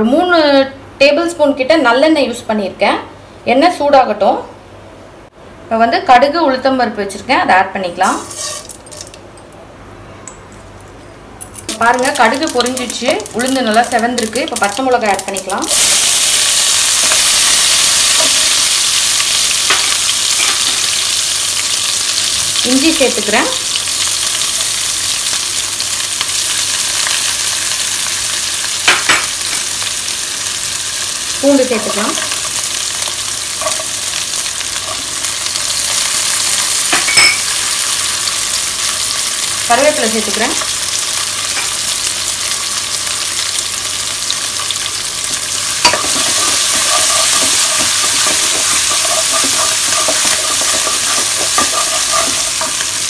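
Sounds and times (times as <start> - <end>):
spices sizzling in hot oil: 8.0 - 9.3, 11.6 - 53.0
wooden spatula stirring: 45.8 - 53.0.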